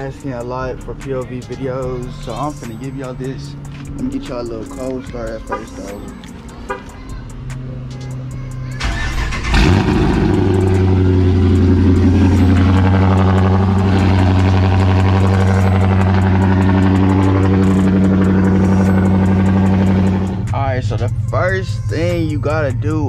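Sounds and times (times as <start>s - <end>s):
starter motor cranking: 8.8s - 10.5s
car engine revving then idling: 8.8s - 22.9s.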